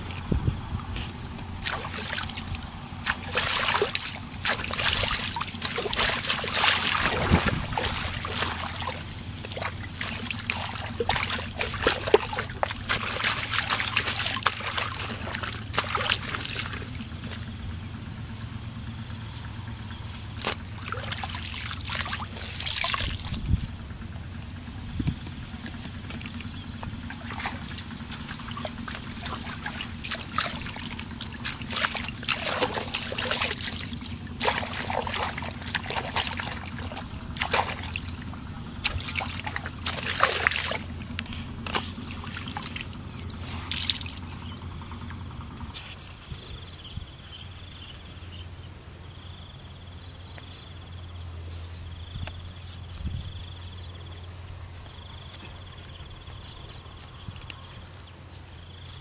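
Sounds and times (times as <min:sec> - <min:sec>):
water sloshing and dripping: 0:00.0 - 0:18.4, 0:19.0 - 0:46.5
low steady hum: 0:00.0 - 0:59.0.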